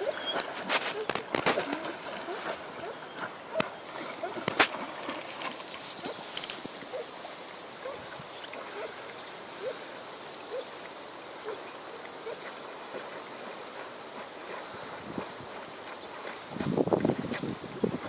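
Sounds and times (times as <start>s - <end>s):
wind on microphone: 14.5s - 18.0s.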